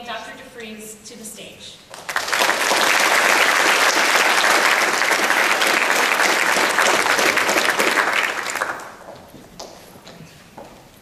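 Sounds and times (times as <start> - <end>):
audience applauding: 1.9 - 9.7.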